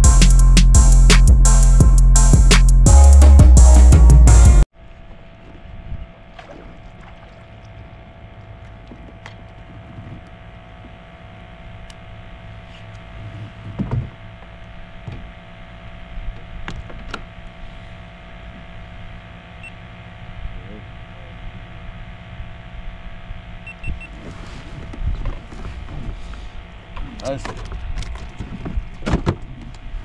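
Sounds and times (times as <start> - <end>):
music: 0.0 - 4.7
thin steady hum: 4.8 - 30.0
knocks and clicks against hull: 8.6 - 11.0, 13.6 - 15.3.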